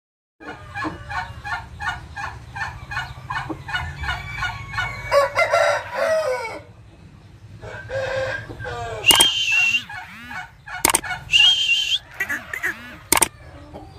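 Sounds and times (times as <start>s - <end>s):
chickens clucking: 0.4s - 13.9s
rooster crowing: 3.8s - 6.7s, 7.6s - 10.4s, 11.3s - 13.7s.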